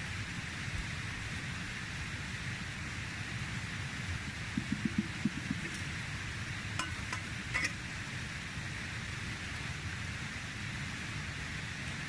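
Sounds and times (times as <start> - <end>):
steady outdoor hiss: 0.0 - 12.0
mug clicks and clinks: 4.6 - 5.8, 6.8 - 7.8.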